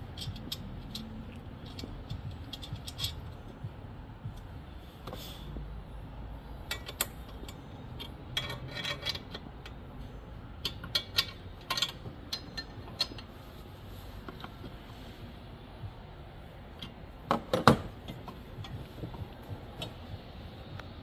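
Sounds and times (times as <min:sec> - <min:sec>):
metallic clicks and clinks: 0:00.0 - 0:03.6, 0:06.6 - 0:09.8, 0:10.6 - 0:13.3
low steady hum: 0:00.0 - 0:21.0.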